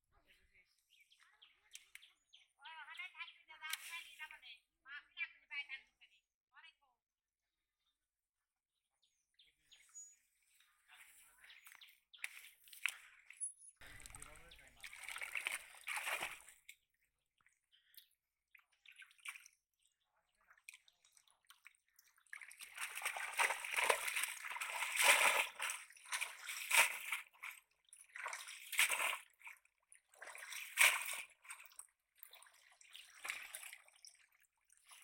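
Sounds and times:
water splashing from thrashing fish: 0:13.8 - 0:16.6, 0:20.6 - 0:35.0.

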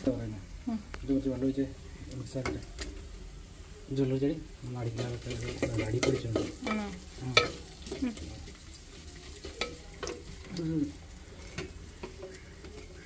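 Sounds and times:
frying sizzle: 0:00.0 - 0:13.0
water pouring: 0:07.2 - 0:13.0
steel tumbler and plate clinking: 0:09.4 - 0:10.5.

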